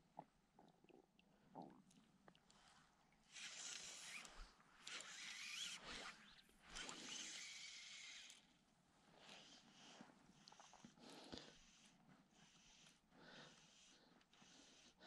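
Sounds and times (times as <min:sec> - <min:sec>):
fly line hissing through guides: 0:03.3 - 0:08.4.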